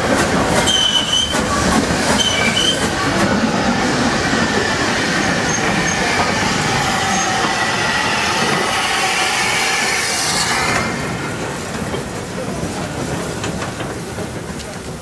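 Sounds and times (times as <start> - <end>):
wheels rumbling on rail: 0.0 - 15.0
wheel flanges squealing: 2.1 - 2.9, 5.2 - 8.7.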